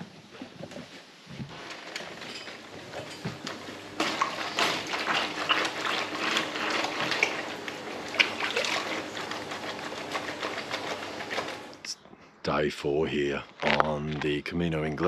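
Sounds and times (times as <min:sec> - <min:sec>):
water running and splashing: 0:03.3 - 0:11.7.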